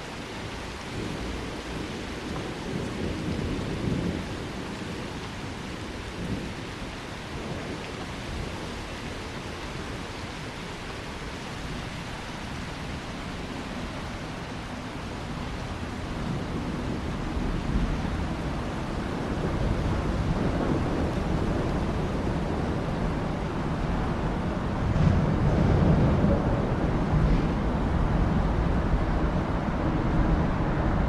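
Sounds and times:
steady rain: 0:00.0 - 0:31.0
thunder rumble: 0:00.9 - 0:10.8, 0:14.7 - 0:31.0.

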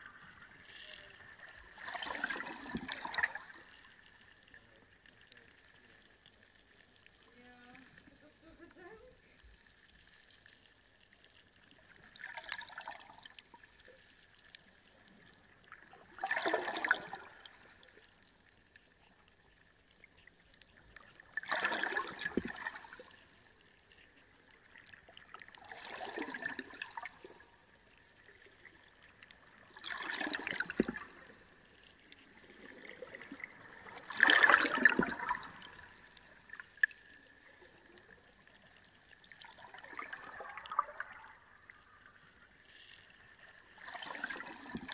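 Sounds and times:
aquarium water rushing and trickling: 0:00.0 - 0:03.8, 0:11.7 - 0:14.0, 0:15.6 - 0:17.9, 0:20.7 - 0:38.2, 0:39.2 - 0:42.0, 0:43.6 - 0:44.9.

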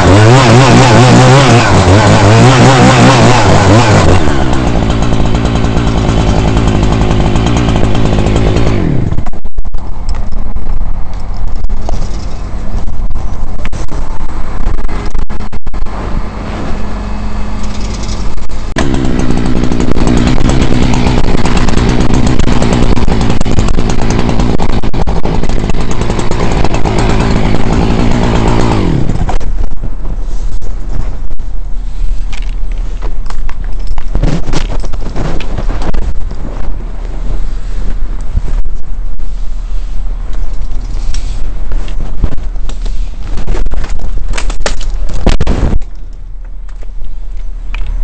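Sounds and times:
chainsaw idling and revving: 0:00.0 - 0:10.0, 0:14.8 - 0:29.8.

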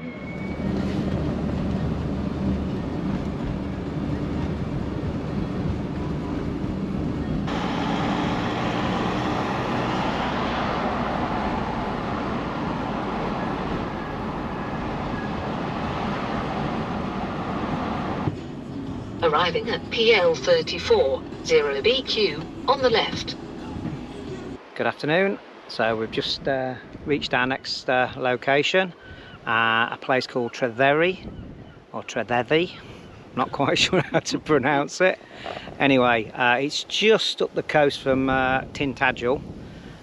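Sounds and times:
van engine rumble: 0:00.4 - 0:21.6.

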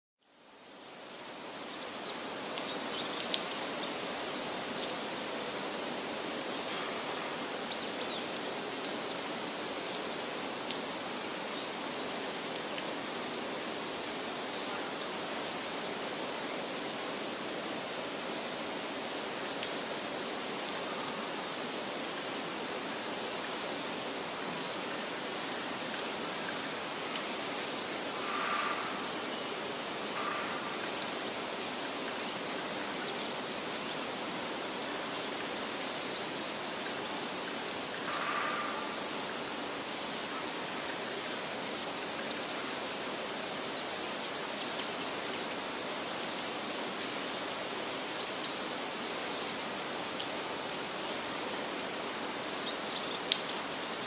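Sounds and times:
outdoor background hiss: 0:00.2 - 0:54.0.

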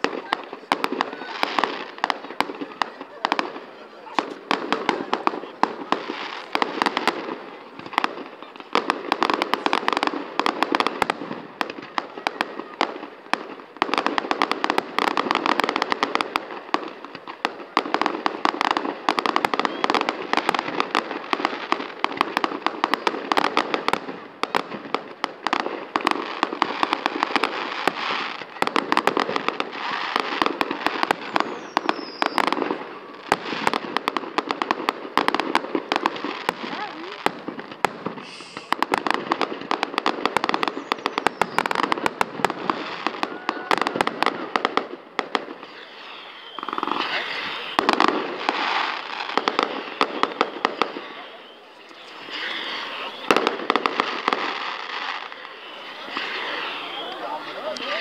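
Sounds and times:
fireworks bangs and crackles: 0:00.0 - 0:58.0
falling whistle: 0:31.3 - 0:32.5, 0:45.7 - 0:48.0, 0:49.2 - 0:53.5, 0:55.2 - 0:58.0.

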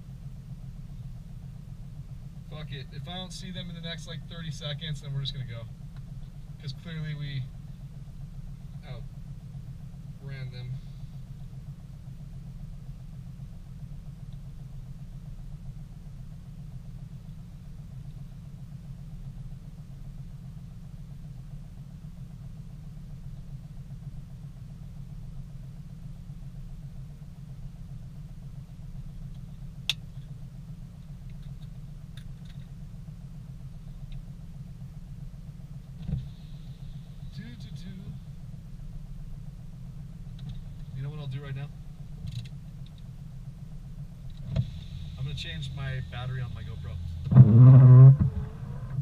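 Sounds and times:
car engine idling: 0:00.0 - 0:49.0.

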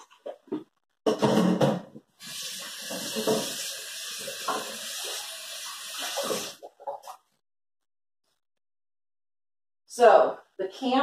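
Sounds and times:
tap water splashing into sink: 0:02.2 - 0:07.2.

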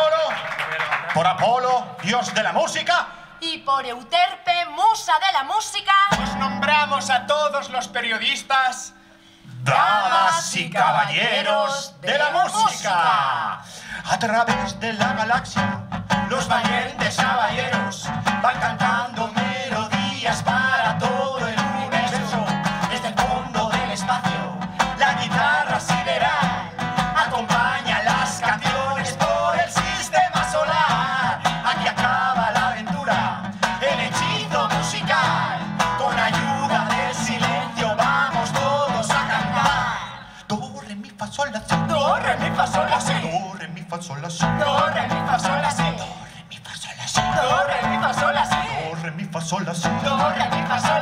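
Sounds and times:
woman and man singing: 0:06.1 - 0:08.0, 0:09.5 - 0:51.0
acoustic guitar strumming: 0:06.1 - 0:10.7, 0:14.1 - 0:40.4, 0:41.7 - 0:43.5, 0:44.4 - 0:46.3, 0:47.2 - 0:48.9, 0:49.8 - 0:51.0.

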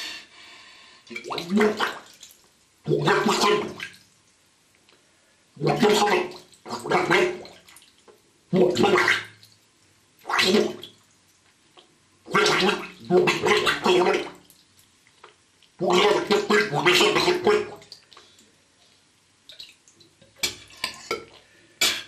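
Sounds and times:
man speaking underwater bubbling: 0:01.2 - 0:02.0, 0:02.9 - 0:03.9, 0:05.6 - 0:07.6, 0:08.5 - 0:09.3, 0:10.3 - 0:10.8, 0:12.3 - 0:14.4, 0:15.8 - 0:17.9.

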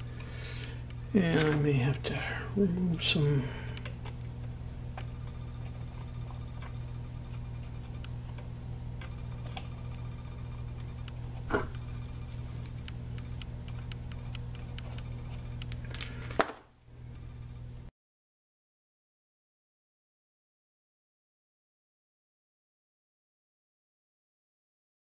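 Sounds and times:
low electrical hum: 0:00.0 - 0:17.9.

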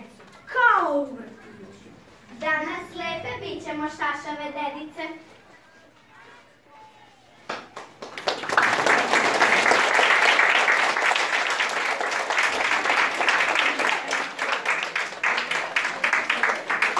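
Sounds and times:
audience applauding: 0:07.5 - 0:16.9.

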